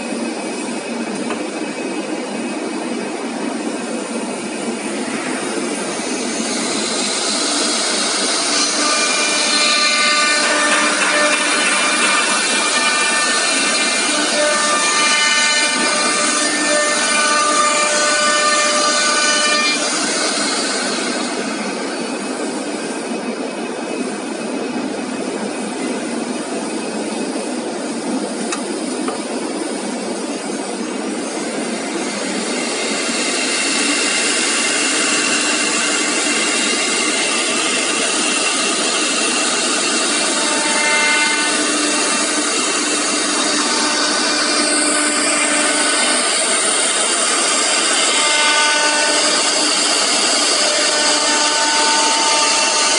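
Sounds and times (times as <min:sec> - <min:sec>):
router spindle whirring and cutting: 0:06.9 - 0:21.8, 0:39.8 - 0:52.9.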